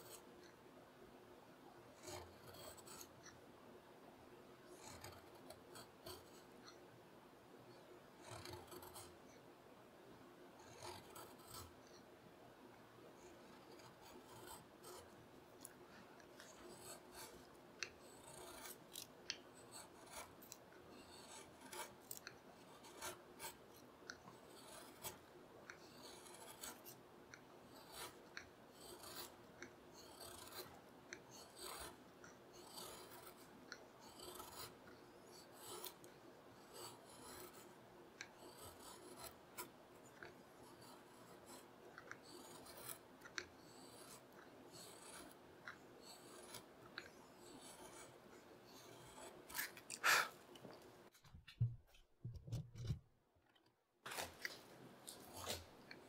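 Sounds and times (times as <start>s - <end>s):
carving gouge slicing wood: 4.8s - 6.5s, 8.2s - 9.2s, 10.6s - 12.0s, 13.3s - 48.2s, 48.8s - 50.4s, 55.1s - 55.7s.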